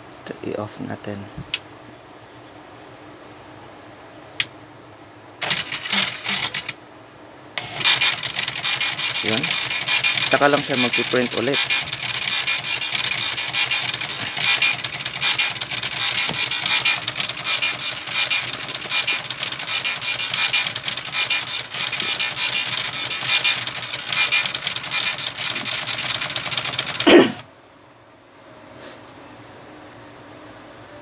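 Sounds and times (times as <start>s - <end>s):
dot-matrix printer printing: 5.4s - 6.7s, 7.6s - 27.0s
printer whir: 5.4s - 6.8s, 7.6s - 27.4s.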